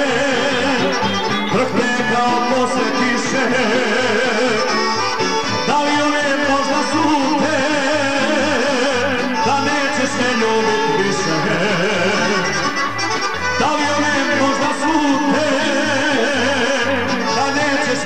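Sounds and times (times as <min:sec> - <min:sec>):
band with steady bass beat: 0:00.0 - 0:03.8
man singing into a microphone: 0:00.0 - 0:18.0.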